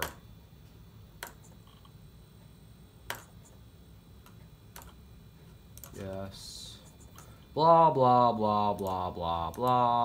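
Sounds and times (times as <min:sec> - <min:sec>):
faint low hum: 0:00.0 - 0:10.0
computer mouse clicks: 0:03.1 - 0:03.6.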